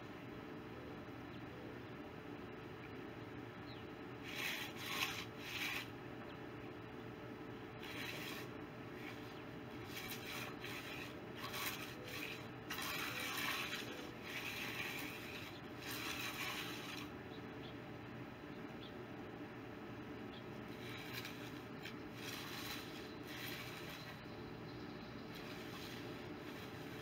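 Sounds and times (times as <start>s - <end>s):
tool scraping concrete: 4.2s - 5.9s, 7.8s - 17.2s, 20.7s - 24.3s, 25.3s - 27.0s.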